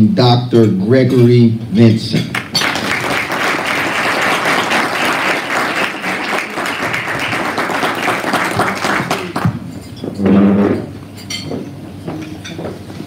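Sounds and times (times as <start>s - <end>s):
audience applauding: 2.3s - 9.6s.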